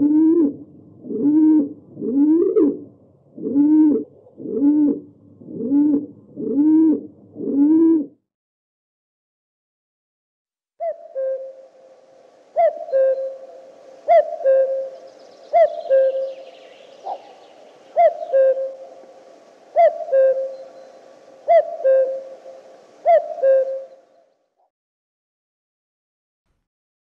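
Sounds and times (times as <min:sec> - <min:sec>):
cuckoo calling: 0:00.0 - 0:08.1, 0:10.8 - 0:24.3.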